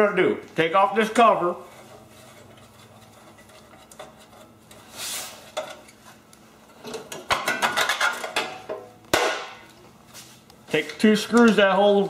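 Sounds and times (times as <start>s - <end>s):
metal cover scraping: 1.3s - 6.1s
metal clanks and rattles: 6.8s - 8.8s.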